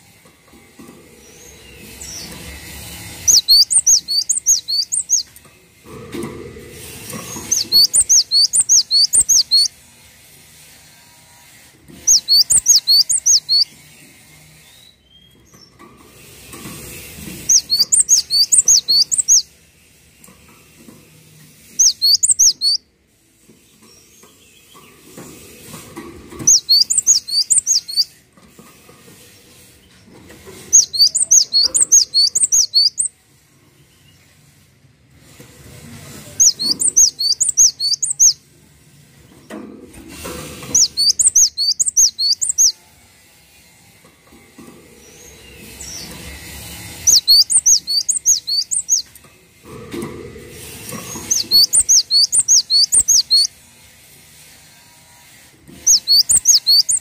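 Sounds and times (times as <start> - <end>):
bird singing whistled notes: 3.1 - 5.3, 7.4 - 9.7, 12.0 - 13.8, 17.4 - 19.5, 21.8 - 22.8, 26.4 - 28.1, 30.7 - 33.1, 36.4 - 38.4, 40.7 - 42.8, 47.0 - 49.1, 51.2 - 53.5, 55.8 - 57.0.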